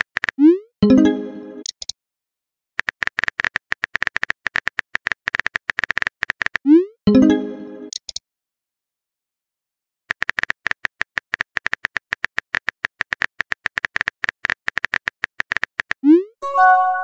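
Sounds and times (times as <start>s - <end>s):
phone keyboard clicks: 2.8s - 6.6s, 10.1s - 16.0s
bright chime: 16.4s - 17.0s.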